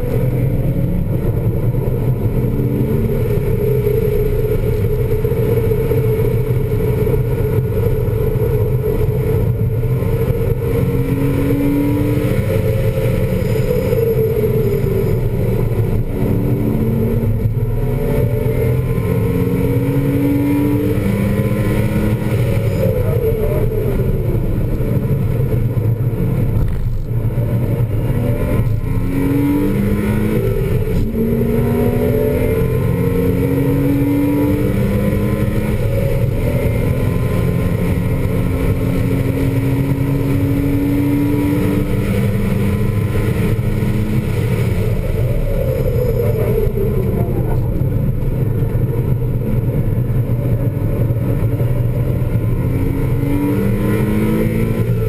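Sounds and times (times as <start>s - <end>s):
car engine revving through gears: 0.0s - 55.0s
road and wind noise: 0.0s - 55.0s.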